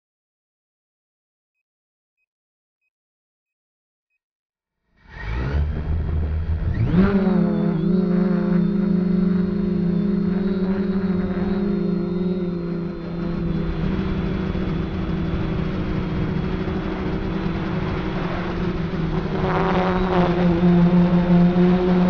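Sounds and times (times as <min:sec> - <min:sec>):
quadcopter motors humming: 0:05.1 - 0:22.0.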